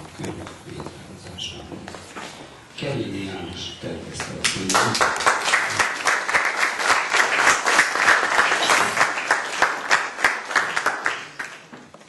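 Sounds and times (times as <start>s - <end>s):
audience applauding: 4.2s - 11.7s.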